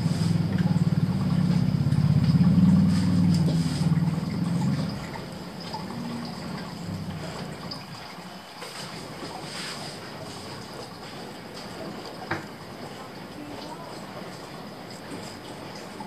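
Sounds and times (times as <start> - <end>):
vehicle engine rumbling: 0.0 - 7.9.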